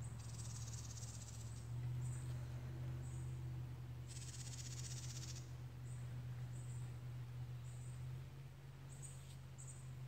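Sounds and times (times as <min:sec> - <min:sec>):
insects trilling: 0:00.0 - 0:02.2, 0:04.1 - 0:05.5
steady low hum: 0:00.0 - 0:10.0.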